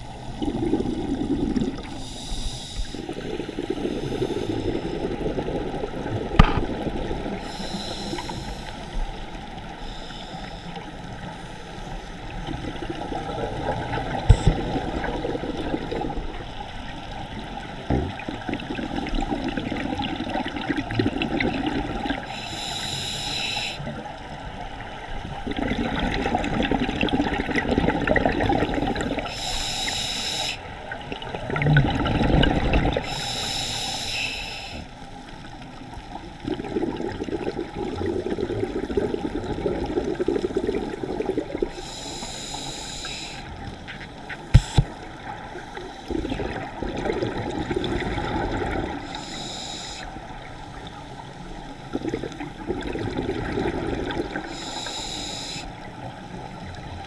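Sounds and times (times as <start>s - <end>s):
exhaled air bubbling: 0.0s - 9.8s, 12.2s - 34.0s, 36.2s - 57.0s
regulator inhalation hiss: 1.9s - 3.2s, 7.4s - 9.0s, 9.7s - 10.8s, 22.3s - 23.9s, 29.2s - 30.7s, 33.0s - 34.9s, 41.7s - 43.7s, 44.5s - 44.9s, 49.0s - 50.2s, 54.4s - 55.9s
sharp knocks: 44.6s - 44.9s.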